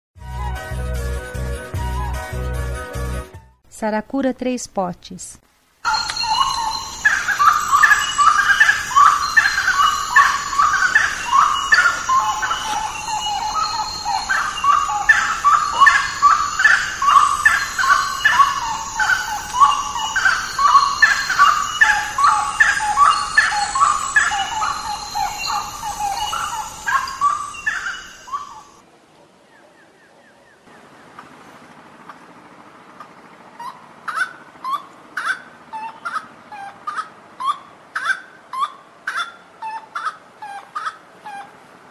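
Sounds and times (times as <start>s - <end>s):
wood rail calling: 5.9s - 28.6s.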